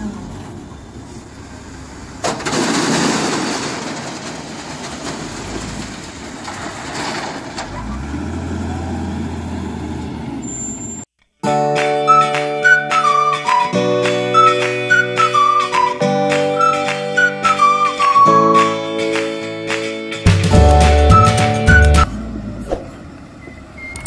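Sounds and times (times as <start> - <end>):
diesel engine drone: 0.0 - 2.3, 7.6 - 11.0, 20.6 - 24.0
crushed stone rattling into steel bed: 2.2 - 7.8.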